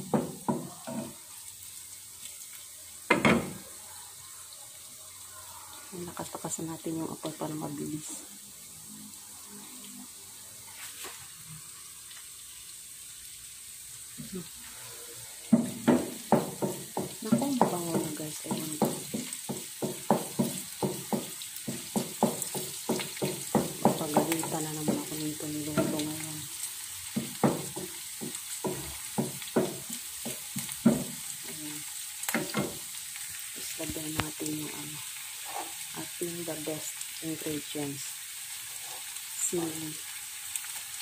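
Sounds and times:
food sizzling in hot oil: 0:00.0 - 0:41.0
wooden spatula scraping pan: 0:35.4 - 0:35.9, 0:38.6 - 0:39.2.

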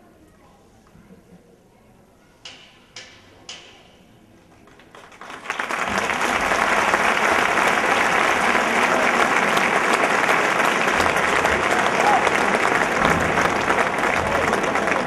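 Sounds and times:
crowd applauding: 0:04.5 - 0:15.0.

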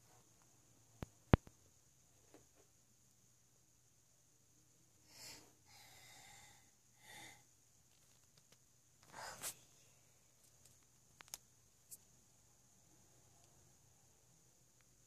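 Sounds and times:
toddler breathing softly: 0:05.0 - 0:07.5, 0:09.1 - 0:10.1.

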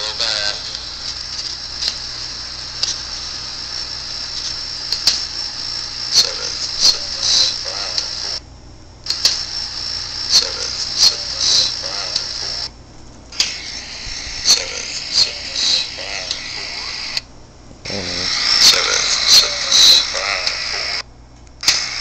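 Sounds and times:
steady hiss: 0:17.9 - 0:21.0.

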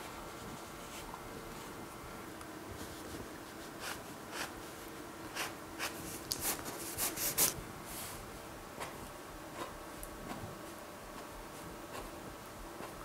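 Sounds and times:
paint marker scratching canvas: 0:05.3 - 0:07.6.

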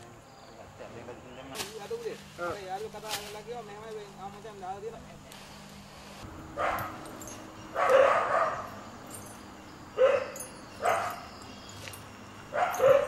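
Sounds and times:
dog barking: 0:06.6 - 0:07.0, 0:07.7 - 0:08.8, 0:10.0 - 0:11.3, 0:12.5 - 0:13.0.

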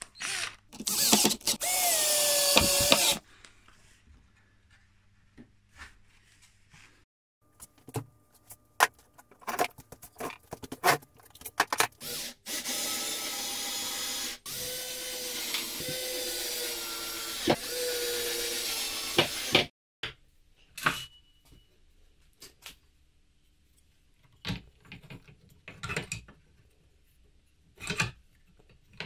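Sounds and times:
cordless drill running: 0:00.2 - 0:03.2, 0:12.0 - 0:19.7.

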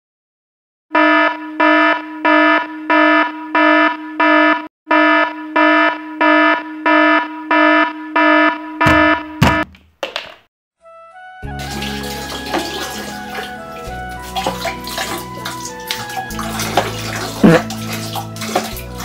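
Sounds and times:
phone alarm beeping: 0:01.0 - 0:09.7.

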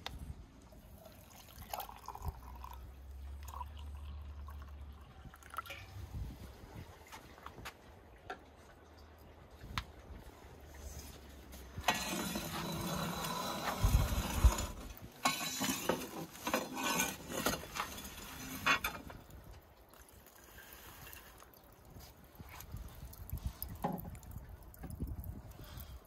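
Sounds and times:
pole scraping embers on stone: 0:11.1 - 0:19.4
coals clinking: 0:11.7 - 0:19.4.

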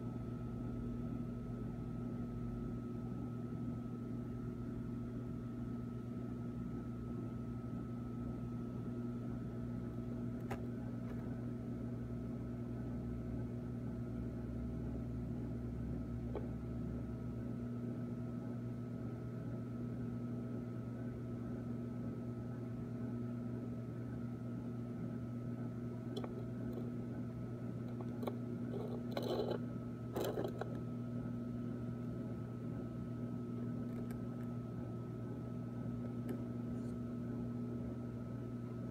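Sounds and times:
aquarium equipment humming: 0:00.0 - 0:38.9
faint knocks and clicks: 0:26.1 - 0:27.0, 0:27.8 - 0:30.8.

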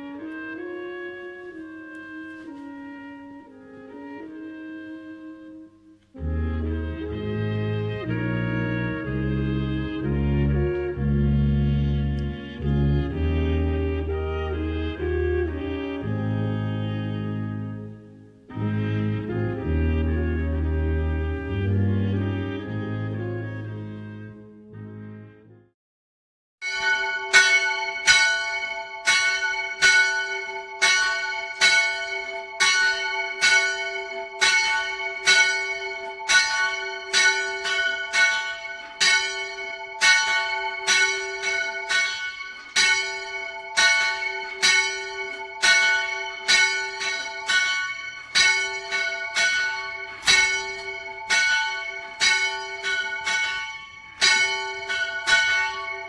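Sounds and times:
church bells ringing: 0:26.6 - 0:56.0.

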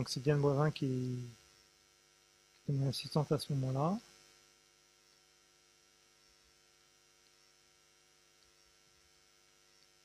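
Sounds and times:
faint electrical hum: 0:00.0 - 0:10.0
tiny ticks: 0:09.7 - 0:10.0.

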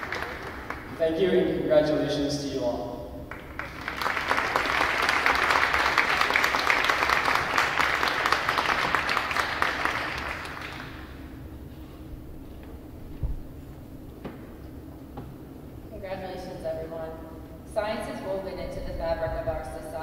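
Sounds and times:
audience applauding: 0:00.0 - 0:01.1, 0:03.3 - 0:11.3.

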